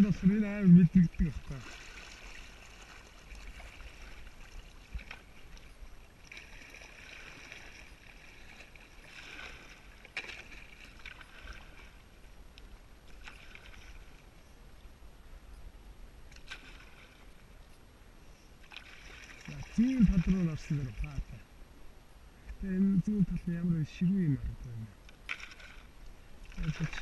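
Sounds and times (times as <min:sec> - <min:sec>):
paddle splashing in water: 0:01.0 - 0:12.2, 0:13.0 - 0:14.3, 0:16.3 - 0:17.4, 0:18.6 - 0:21.3, 0:25.2 - 0:27.0.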